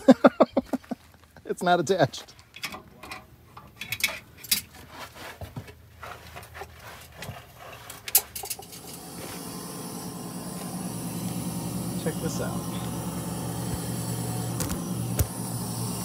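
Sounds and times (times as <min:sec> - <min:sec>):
steady hissing: 0:08.5 - 0:16.0.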